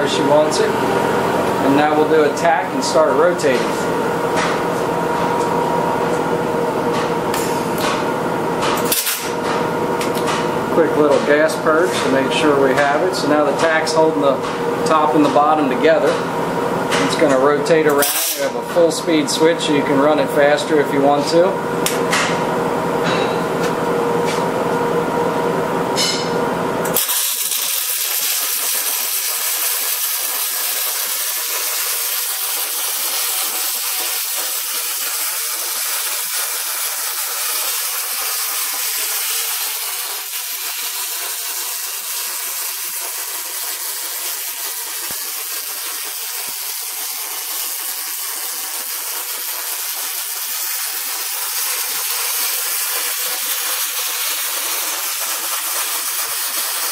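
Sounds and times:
welding arc hissing: 8.8s - 9.3s, 17.9s - 18.6s, 26.8s - 56.9s.

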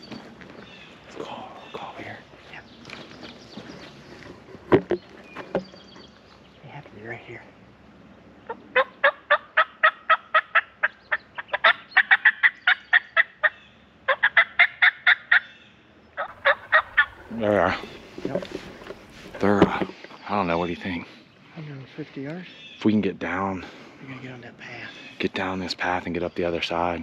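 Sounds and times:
turkey call yelps: 8.5s - 15.6s, 16.2s - 18.0s.

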